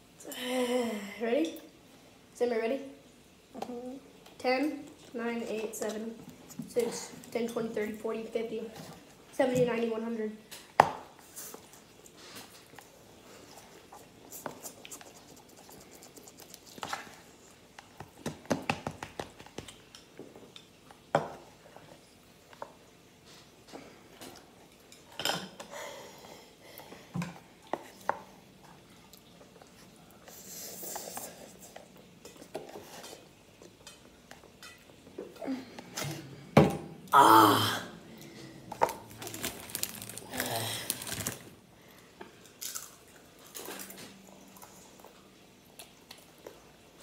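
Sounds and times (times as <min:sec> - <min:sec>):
short vocal cry: 0:37.1 - 0:38.0.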